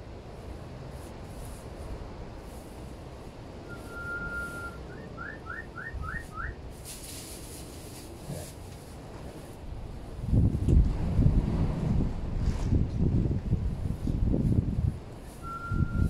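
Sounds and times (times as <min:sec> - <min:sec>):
whistle notes: 0:03.7 - 0:06.6, 0:15.4 - 0:16.0.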